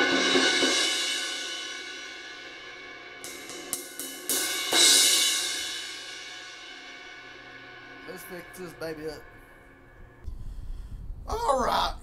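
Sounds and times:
crash cymbal ringing: 0.1s - 10.3s
person talking: 8.0s - 9.3s, 11.3s - 12.0s.

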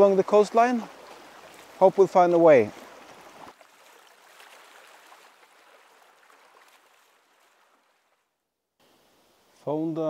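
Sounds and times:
soft even hiss: 8.8s - 10.0s.

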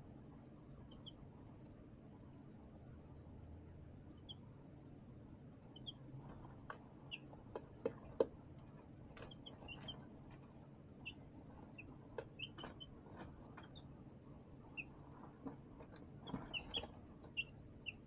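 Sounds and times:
baby chicks peeping: 0.6s - 2.2s, 4.0s - 4.7s, 5.5s - 18.0s.

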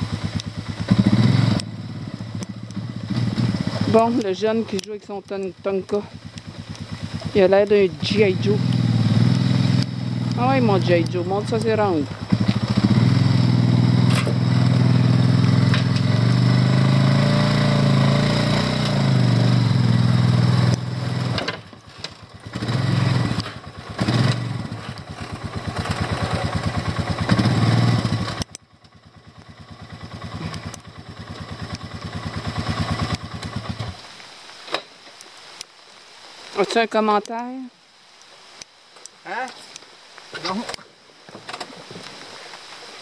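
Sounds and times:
atv engine running: 0.0s - 34.1s.

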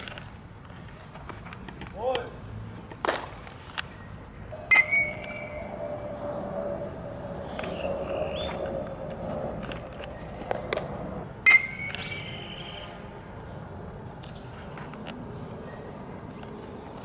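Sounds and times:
outdoor background noise: 0.0s - 17.0s
brief ringing tone: 4.6s - 8.6s.

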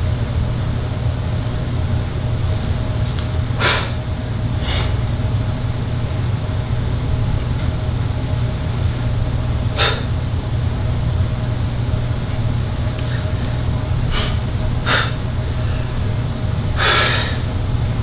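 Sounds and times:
steady low rumble: 0.0s - 18.0s
sharp exhaled breaths: 3.6s - 4.0s, 4.6s - 5.0s, 9.8s - 10.2s, 14.1s - 16.0s, 16.8s - 17.5s.

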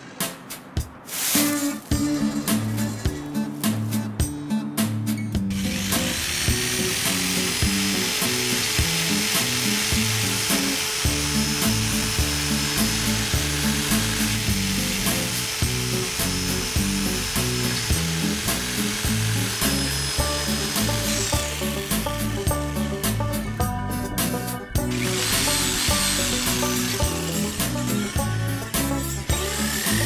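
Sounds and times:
high rasping noise: 1.1s - 4.3s, 5.4s - 30.0s
low plucked film score melody: 11.0s - 30.0s.

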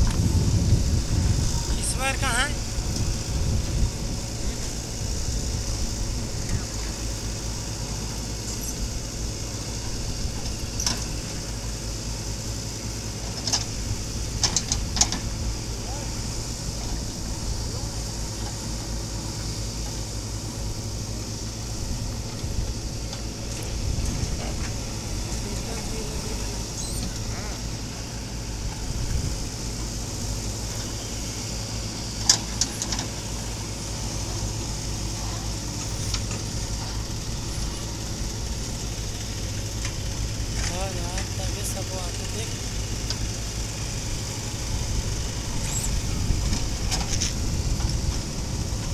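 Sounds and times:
diesel engine running: 0.0s - 48.9s.

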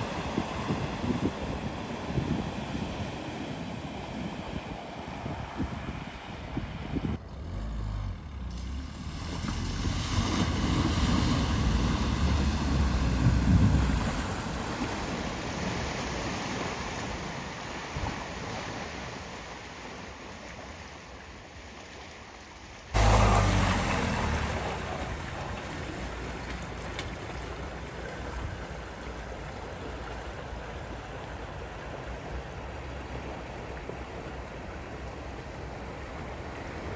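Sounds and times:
vehicle engine rumble: 0.0s - 17.2s, 22.9s - 36.9s
water washing: 8.5s - 19.2s, 22.9s - 36.9s.

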